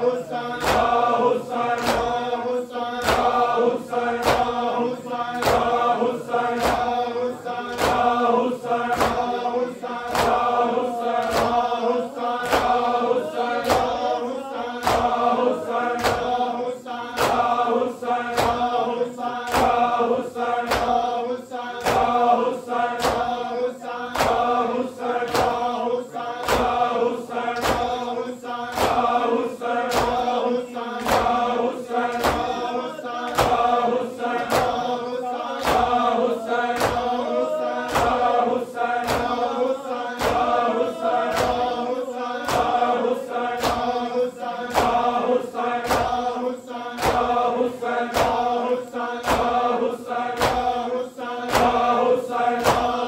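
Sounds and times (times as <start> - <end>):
men chanting: 0.0 - 53.0
hands slapping chests: 0.6 - 1.1, 1.7 - 2.3, 3.0 - 4.7, 5.4 - 5.9, 6.5 - 7.0, 7.7 - 8.2, 8.8 - 9.4, 10.1 - 11.8, 12.4 - 14.2, 14.8 - 16.4, 18.4 - 18.7, 21.8 - 22.2, 23.0 - 23.4, 24.2 - 24.5, 25.3 - 25.7, 26.4 - 26.8, 27.6 - 28.0, 28.7 - 29.2, 29.9 - 30.3, 31.0 - 31.5, 32.1 - 34.9, 35.6 - 38.4, 39.0 - 39.4, 40.2 - 41.8, 42.4 - 42.9, 43.6 - 44.0, 44.7 - 45.2, 47.0 - 47.4, 48.1 - 48.5, 50.4 - 50.8, 51.5 - 51.8.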